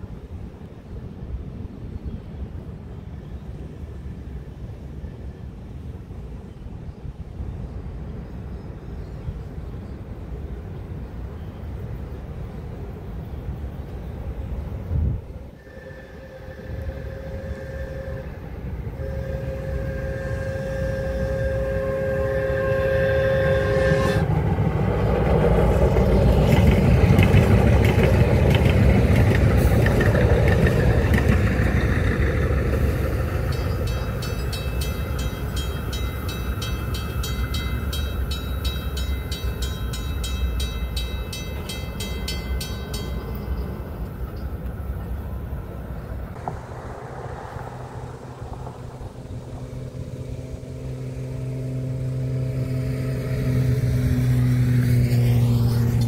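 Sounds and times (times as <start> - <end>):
train running past: 0.0 - 56.0
crossing warning bell ringing: 30.5 - 45.7.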